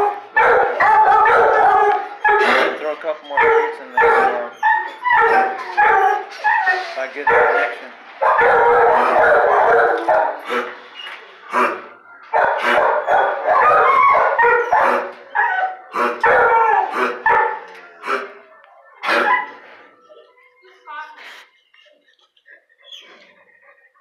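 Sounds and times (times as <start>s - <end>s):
dogs barking and howling: 0.0s - 10.8s, 12.3s - 17.8s, 19.1s - 19.6s.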